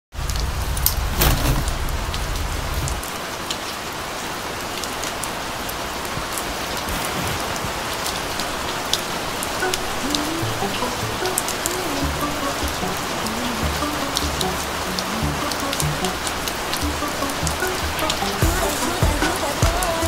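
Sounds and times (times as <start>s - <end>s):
raindrops ticking close by: 0.1s - 20.0s
steady rain falling: 0.1s - 20.0s
low rumble: 0.2s - 3.1s.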